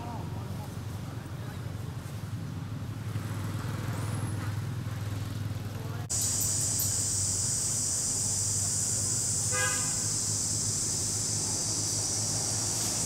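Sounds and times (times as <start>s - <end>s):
cicadas droning: 6.1s - 13.0s
horn-like toot: 8.7s - 10.4s.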